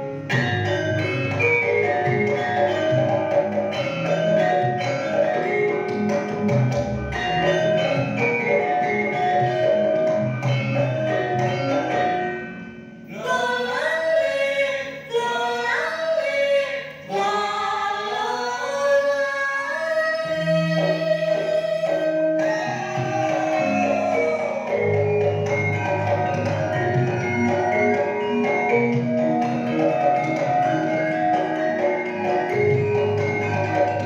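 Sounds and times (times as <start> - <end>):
gamelan music: 0.0 - 13.2, 20.2 - 34.0
person singing: 13.1 - 26.5.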